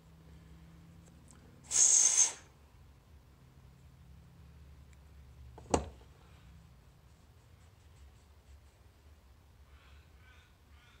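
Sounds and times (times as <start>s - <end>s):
short hiss: 1.6s - 2.5s.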